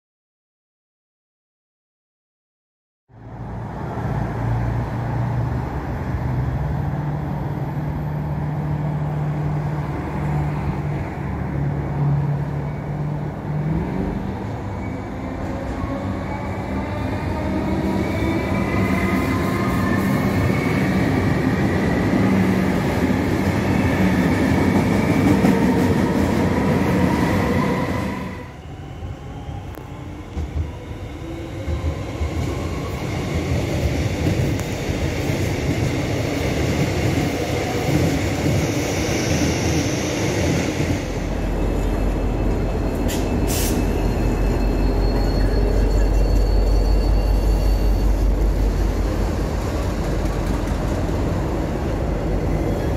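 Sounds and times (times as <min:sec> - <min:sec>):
train wheels rumbling on rails: 0:15.2 - 0:52.9.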